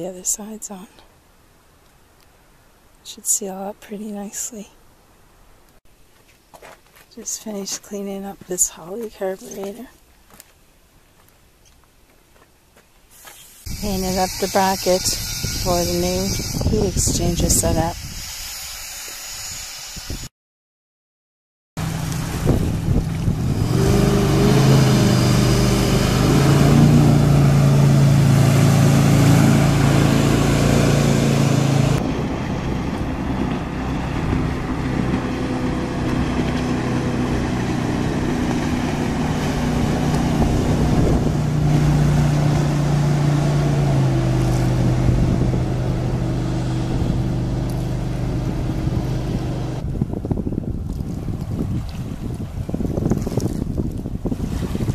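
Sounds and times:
rush of water and wind: 13.6s - 18.5s, 21.8s - 54.9s
boat engine droning: 13.7s - 18.0s, 21.8s - 50.1s.

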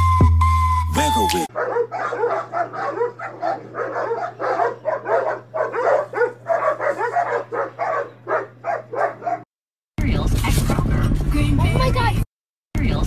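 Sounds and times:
dogs barking: 1.5s - 9.5s.

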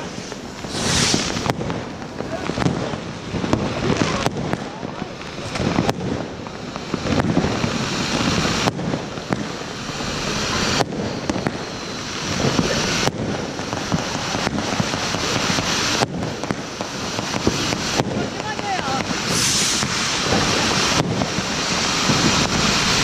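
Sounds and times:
firework fountain hissing and crackling: 0.0s - 23.0s.

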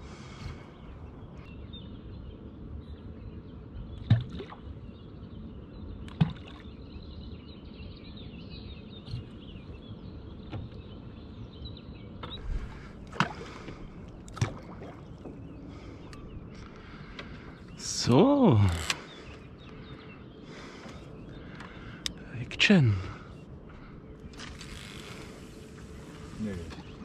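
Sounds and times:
water lapping against boat hull: 3.9s - 4.9s, 6.0s - 6.8s, 12.2s - 22.2s, 22.9s - 27.0s.

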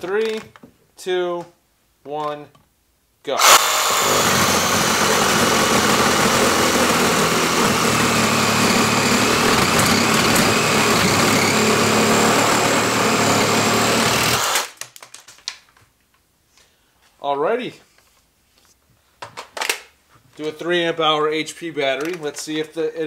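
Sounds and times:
reciprocating saw cutting wood: 3.4s - 14.7s.

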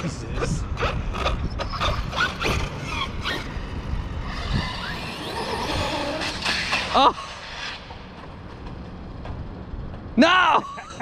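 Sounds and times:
wind rumbling on microphone: 0.0s - 10.2s
electric motor whining: 0.7s - 8.8s.

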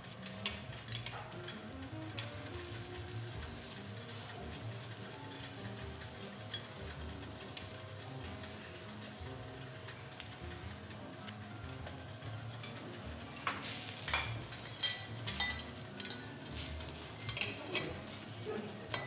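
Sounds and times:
vegetables sizzling on a griddle: 0.0s - 19.0s
knife and spatula scraping metal: 13.4s - 19.0s.

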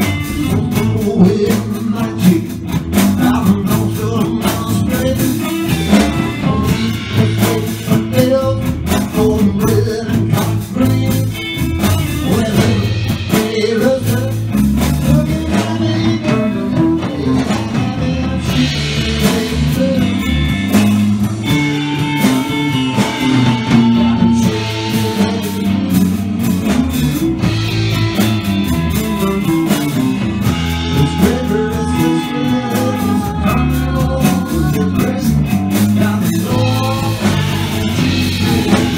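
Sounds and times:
drums: 0.0s - 38.9s
electric bass: 0.0s - 38.9s
electric guitar: 0.0s - 38.9s.

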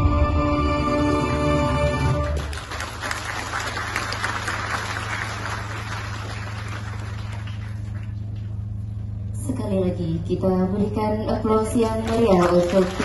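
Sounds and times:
steady low hum: 0.0s - 13.0s
audience applauding: 2.0s - 8.5s, 11.8s - 13.0s.

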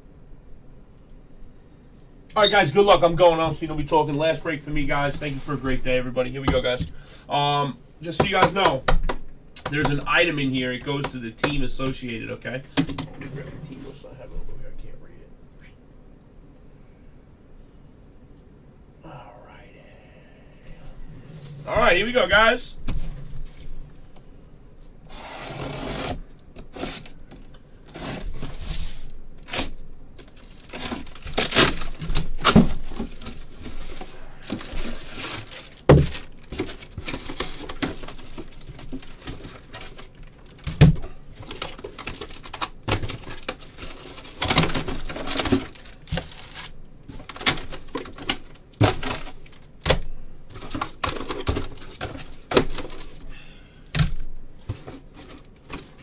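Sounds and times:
cardboard flaps crinkling: 21.6s - 23.8s, 25.6s - 53.3s, 54.0s - 56.0s
box cutter slicing tape: 25.1s - 27.1s, 27.9s - 28.6s
tape ripping: 25.1s - 27.2s, 29.4s - 33.4s.

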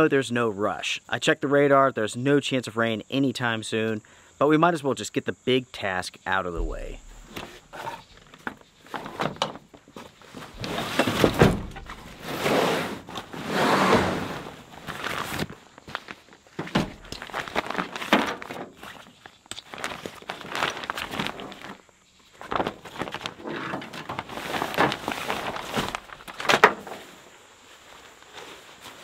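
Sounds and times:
nylon fabric rustling and crinkling: 8.8s - 29.0s.

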